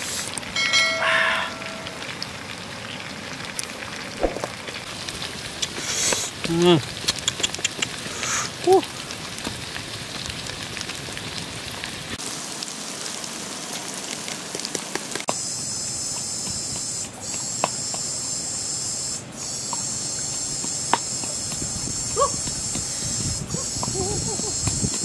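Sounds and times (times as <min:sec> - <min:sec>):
stew sizzling in a wok: 0:00.0 - 0:25.0.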